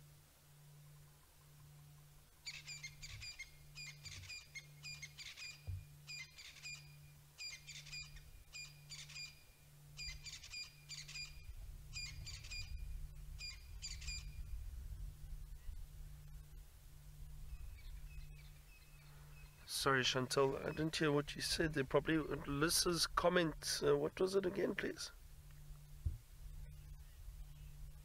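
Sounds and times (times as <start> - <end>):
bird chirping: 0.8 - 14.6, 17.4 - 22.4, 26.5 - 28.0
low rumble: 11.4 - 19.6.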